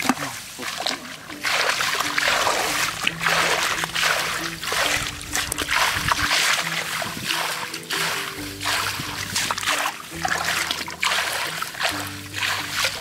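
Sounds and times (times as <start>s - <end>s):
hands splashing muddy water: 0.0s - 13.0s.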